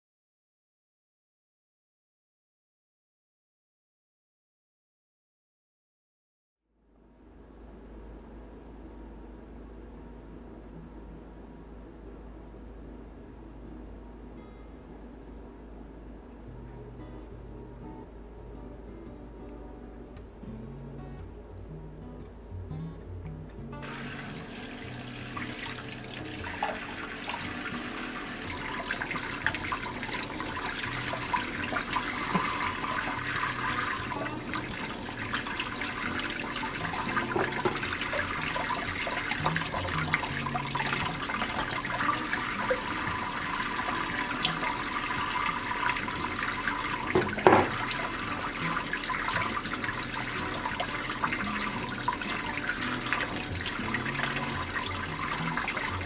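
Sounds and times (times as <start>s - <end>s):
tap water splashing into sink: 23.8s - 56.0s.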